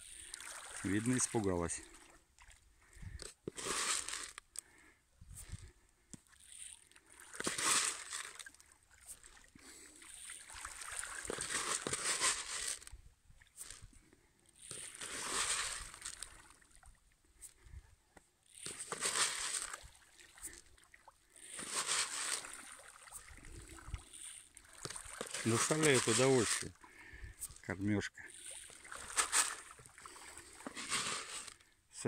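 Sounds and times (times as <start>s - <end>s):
fish splashing at water surface: 0.0s - 1.3s, 6.3s - 12.8s, 14.6s - 16.9s, 18.5s - 27.6s, 28.3s - 31.6s.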